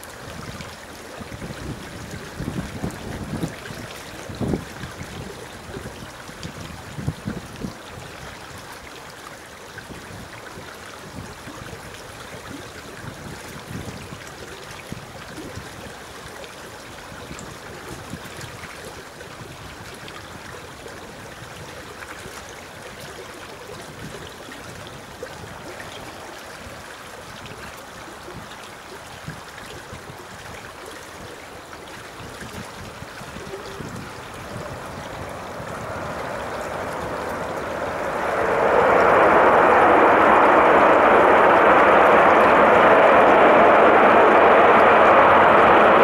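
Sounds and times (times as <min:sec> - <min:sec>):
wind buffeting microphone: 0:00.0 - 0:08.9, 0:09.8 - 0:16.1, 0:29.2 - 0:46.0
distant jet airliner rushing: 0:33.5 - 0:46.0.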